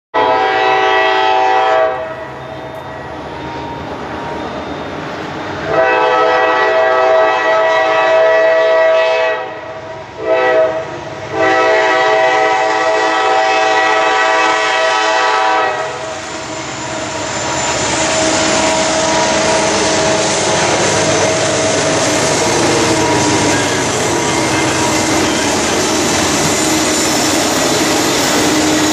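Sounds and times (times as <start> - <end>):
locomotive air horn: 0.2 - 2.7, 5.6 - 16.2
train wheels on rails: 1.0 - 28.9
locomotive engine: 13.2 - 28.9.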